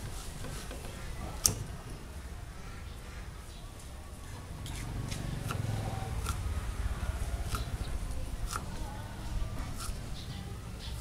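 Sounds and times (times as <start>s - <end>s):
knife chopping on wooden board: 5.1s - 6.4s.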